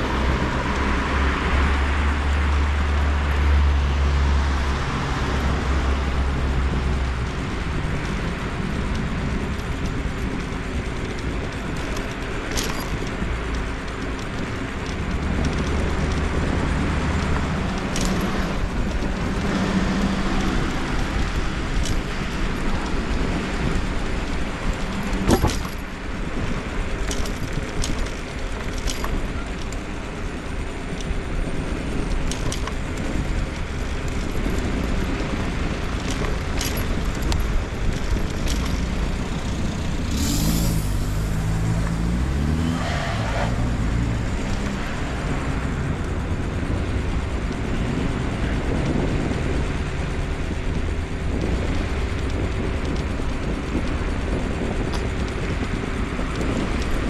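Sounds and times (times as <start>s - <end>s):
road and traffic rumble: 0.0s - 57.0s
sharp clicks and knocks: 6.4s - 57.0s
vehicle passing: 38.7s - 46.8s.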